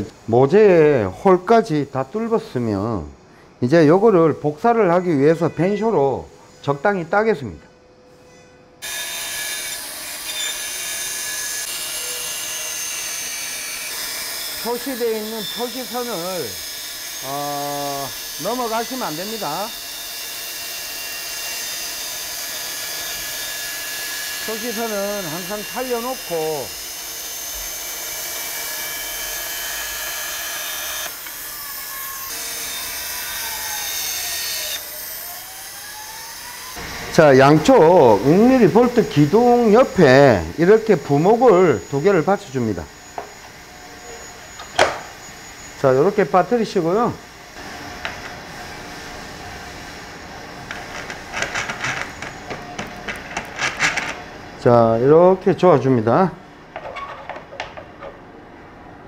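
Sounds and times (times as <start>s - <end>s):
band saw cutting wood: 8.8s - 54.8s.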